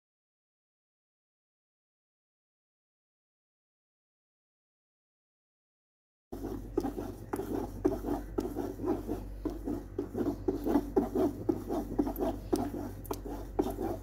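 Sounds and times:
spoon scraping pulp on cloth: 6.4s - 14.0s.

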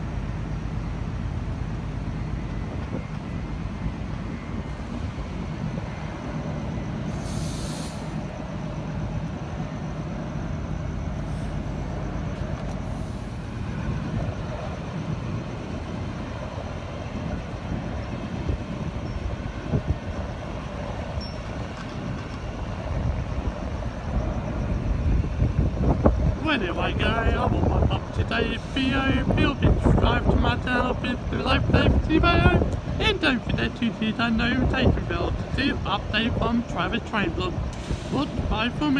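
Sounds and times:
short high hiss: 7.1s - 8.2s.

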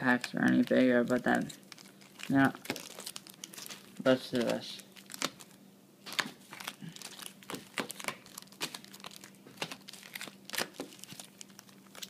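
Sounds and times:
plastic wrappers crinkling: 0.0s - 12.0s
packs tapping on wooden table: 7.5s - 8.9s.

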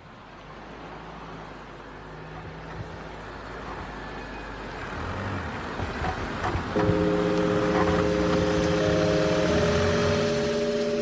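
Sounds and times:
car approaching: 0.0s - 11.0s.

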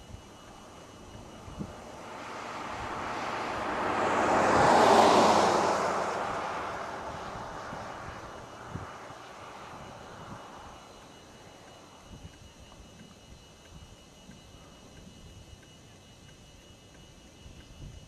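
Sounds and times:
vehicle passing on highway: 0.5s - 10.8s.

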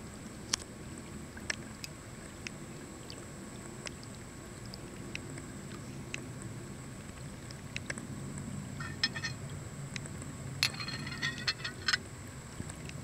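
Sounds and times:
steady low hum: 0.0s - 13.0s
ceramic pieces clinking: 8.8s - 9.4s, 10.6s - 12.0s.

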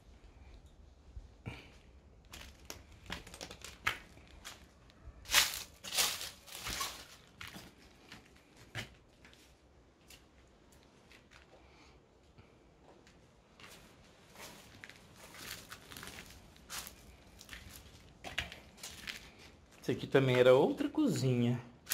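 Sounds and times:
footsteps crunching dry leaves: 2.4s - 8.1s, 14.3s - 19.8s.

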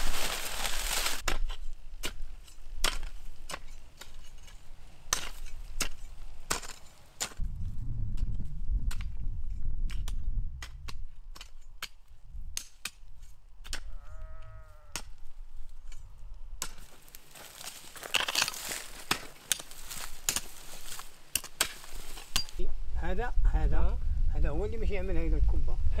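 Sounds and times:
hoes chopping stony soil: 0.0s - 7.5s, 8.1s - 13.9s, 14.9s - 22.6s
animal bleating: 13.9s - 15.0s.

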